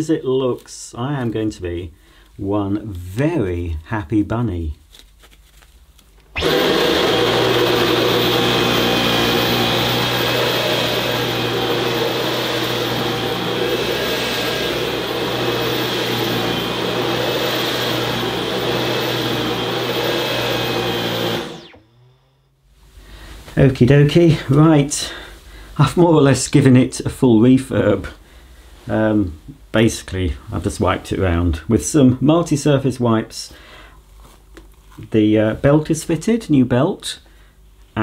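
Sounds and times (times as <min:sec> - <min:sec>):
vacuum cleaner running over carpet: 0:06.4 - 0:21.8.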